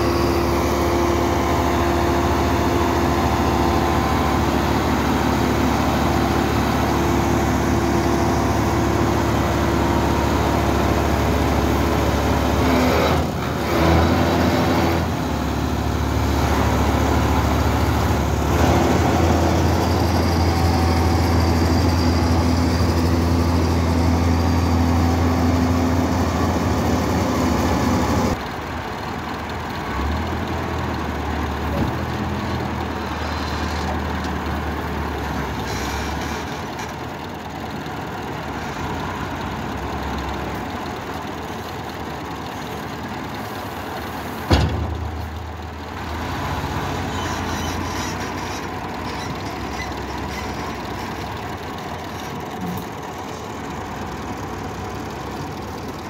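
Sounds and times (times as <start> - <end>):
hay baler engine running: 0.0 - 56.0.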